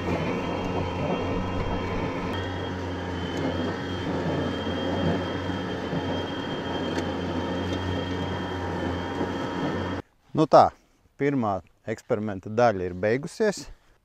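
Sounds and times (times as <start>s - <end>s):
electric mower hum and whine: 0.0s - 10.0s.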